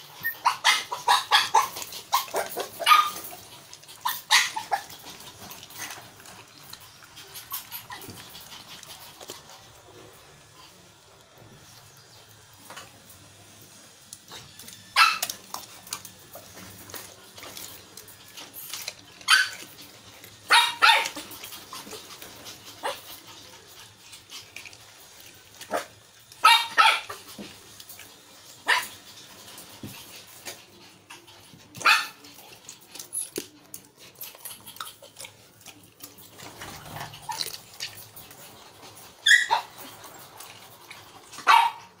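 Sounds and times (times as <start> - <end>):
dog barking: 0.4 - 3.2, 15.0 - 15.4, 20.5 - 21.2, 25.7 - 27.2, 31.8 - 32.2, 41.4 - 42.0.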